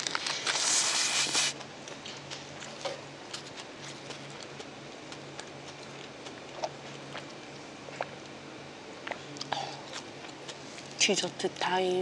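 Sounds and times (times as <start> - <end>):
quiet chewing: 0.0 - 8.4, 9.0 - 11.0
person slurping food: 0.4 - 1.6.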